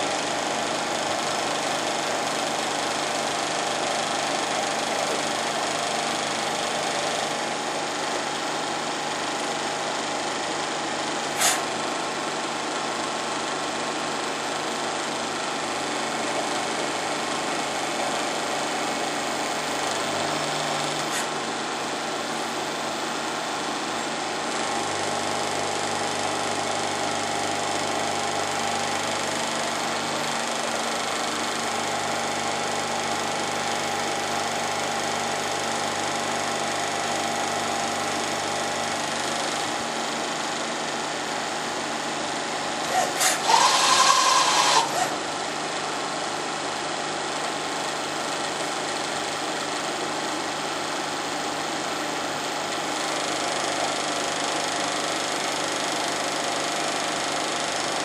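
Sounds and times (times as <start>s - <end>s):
burst of whistling hiss: 11.4s - 11.6s.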